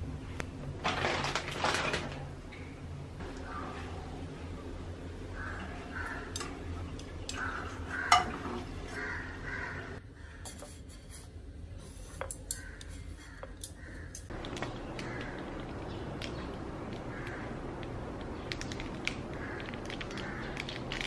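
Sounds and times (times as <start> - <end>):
utensil knocking frying pan: 8.0 - 8.5.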